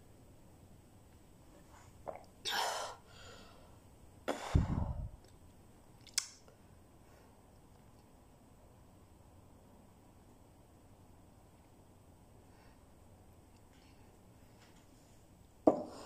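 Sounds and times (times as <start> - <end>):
person swallowing: 2.0 - 2.4.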